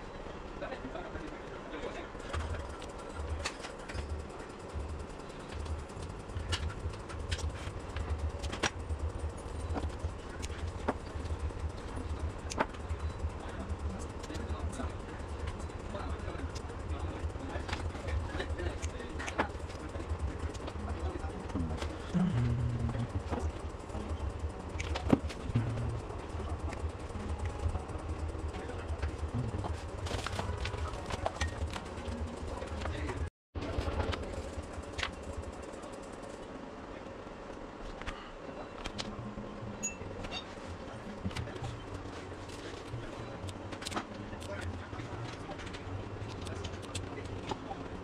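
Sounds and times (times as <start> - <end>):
steady low hum: 0.0 - 48.0
low unsteady rumble: 2.0 - 37.0.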